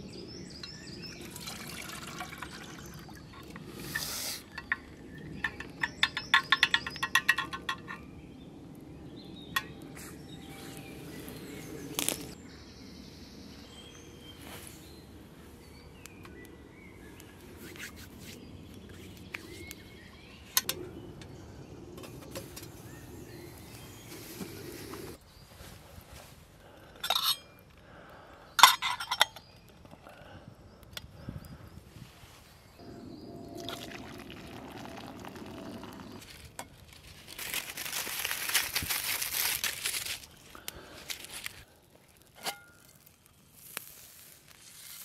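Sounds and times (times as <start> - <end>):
low steady fire noise: 0.0 - 12.5, 14.3 - 28.7, 30.7 - 45.0
faint birdsong: 0.0 - 39.2, 40.3 - 44.3
clicks and clinks of cookware: 4.5 - 8.0, 28.6 - 29.5.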